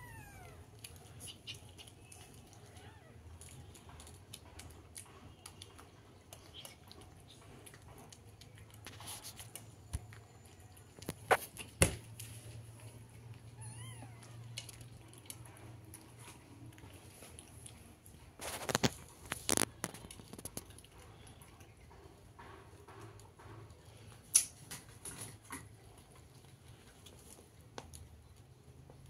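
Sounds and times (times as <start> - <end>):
cat meowing faintly: 0.0 - 0.7, 2.6 - 3.3, 13.5 - 14.6
cat chewing food: 0.0 - 29.0.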